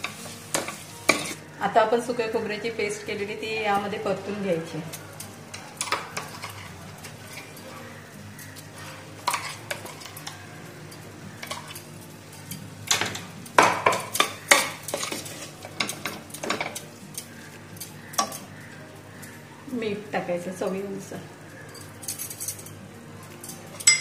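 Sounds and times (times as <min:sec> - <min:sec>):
ladle clinking on steel pot: 0:23.7 - 0:24.0.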